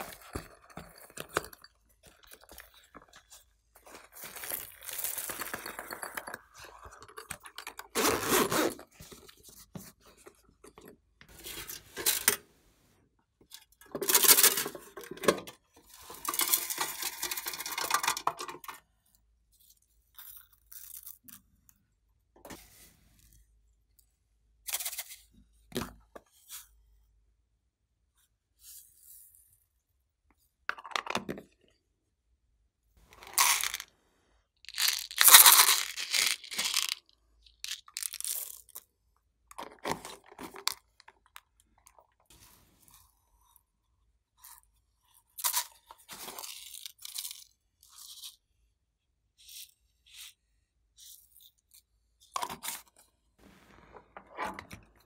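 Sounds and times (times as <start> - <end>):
plastic containers crinkling and rattling: 0.0 - 12.5, 13.6 - 18.8, 33.1 - 33.9, 34.6 - 38.8, 39.5 - 42.2.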